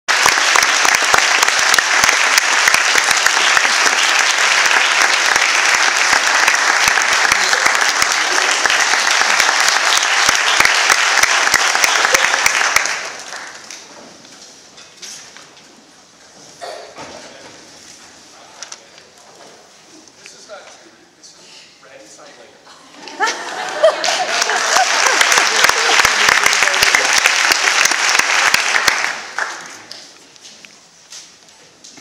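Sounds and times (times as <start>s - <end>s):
audience applauding: 0.1s - 13.9s, 23.0s - 30.2s.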